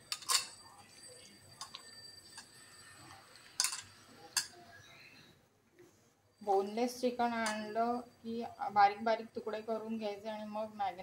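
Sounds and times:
metal bowl clicking and knocking: 0.1 - 0.6, 3.6 - 4.6.

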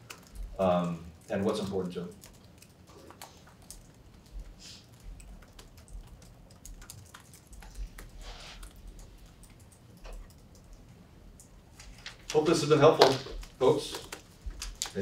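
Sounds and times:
soft rustle or breath: 4.5 - 4.9, 7.7 - 9.3.

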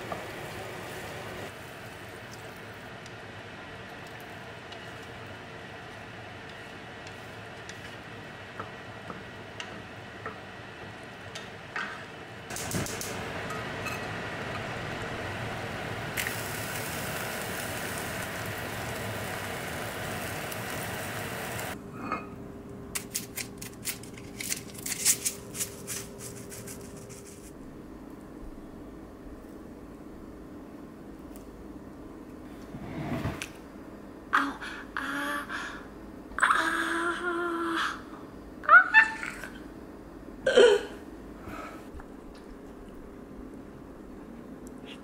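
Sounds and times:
egg sizzling in a pan: 15.7 - 21.8.

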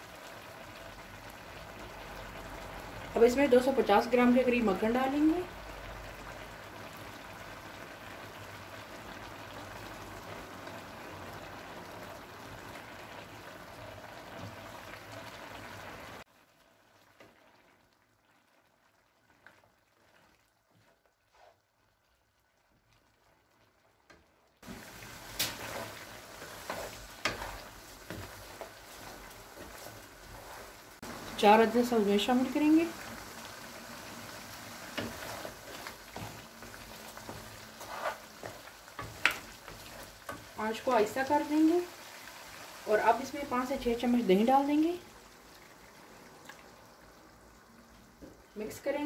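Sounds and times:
curry bubbling and frying: 0.0 - 49.0
spoon scraping and knocking a pan: 25.3 - 30.7, 34.9 - 40.5.

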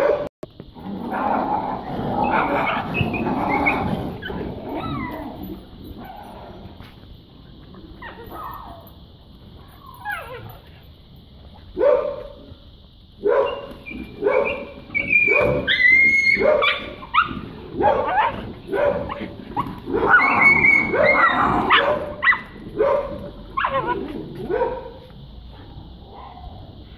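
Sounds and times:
dog barking: 0.0 - 0.3, 11.8 - 12.3, 13.2 - 25.1
dog whining: 1.9 - 6.6, 13.4 - 17.4, 18.0 - 22.5.

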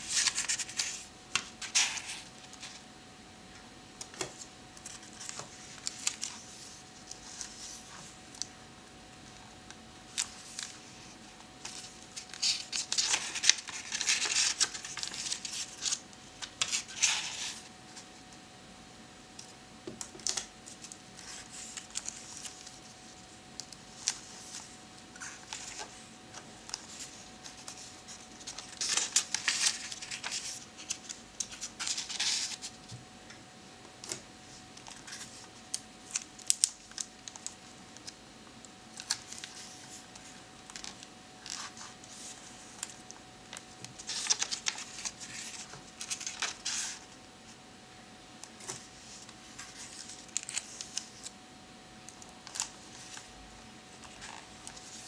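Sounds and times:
fingers handling paper pages: 0.0 - 2.8, 4.0 - 8.5, 9.7 - 17.7, 19.4 - 33.0, 34.0 - 38.2, 38.9 - 47.1, 48.4 - 51.4, 52.0 - 53.3, 53.9 - 55.0
paper rustling: 0.0 - 2.8, 4.0 - 8.5, 10.1 - 18.0, 20.0 - 33.0, 38.9 - 47.1, 48.6 - 51.3, 52.4 - 53.3
faint steady hum: 0.0 - 55.0.

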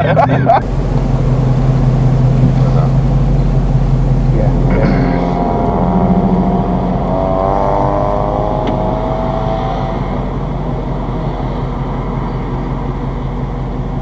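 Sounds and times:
car engine accelerating: 0.0 - 14.0
road noise: 0.0 - 14.0.

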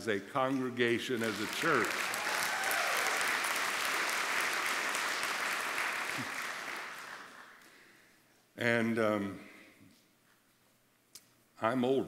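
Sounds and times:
congregation applauding: 1.1 - 7.8.

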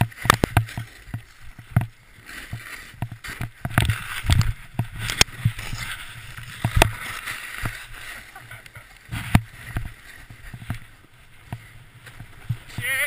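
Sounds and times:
snowboard scraping snow: 0.0 - 13.0
snow spraying against camera: 2.0 - 11.0.

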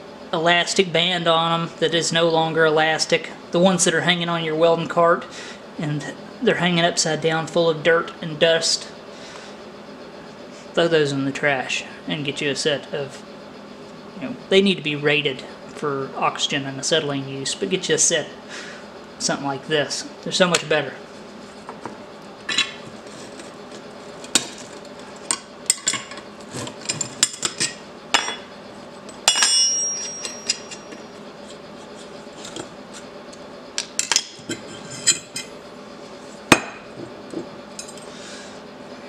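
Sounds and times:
metal tools clinking on steel: 29.1 - 31.0.

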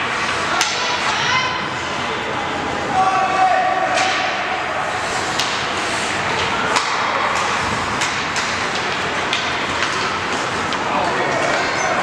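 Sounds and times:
arena noise: 0.0 - 12.0
hockey sticks clacking on puck: 0.2 - 1.1, 3.9 - 12.0.

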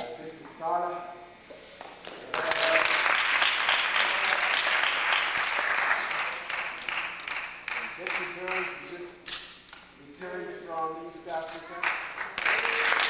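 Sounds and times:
audience applauding: 2.0 - 8.8, 11.8 - 13.0.

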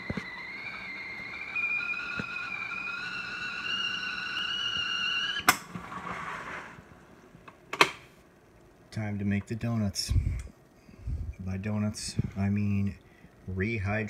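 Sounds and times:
steam hissing: 0.0 - 6.8
kettle whistling: 0.0 - 6.9.

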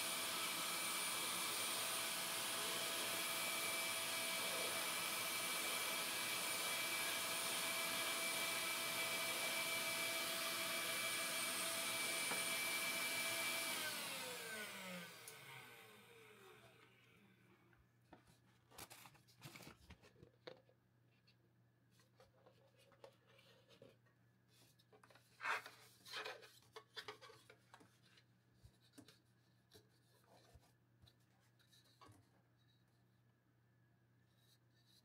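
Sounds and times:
plastic parts clicking and rubbing: 24.6 - 32.6.

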